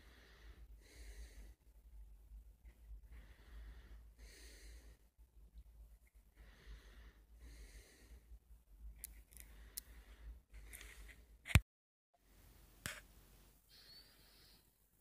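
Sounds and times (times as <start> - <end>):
soft breathing: 0.0 - 1.8, 2.6 - 5.2, 6.0 - 11.3.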